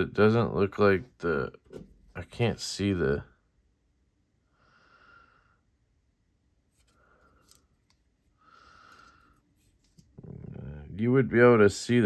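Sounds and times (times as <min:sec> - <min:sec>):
faint breathing: 0:04.4 - 0:06.0, 0:06.8 - 0:10.2.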